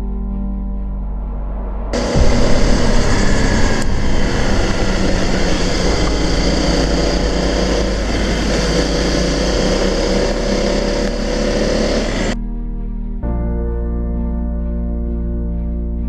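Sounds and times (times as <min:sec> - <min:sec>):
wind rushing over microphone: 0:00.6 - 0:12.4
motorcycle engine running: 0:02.0 - 0:12.4.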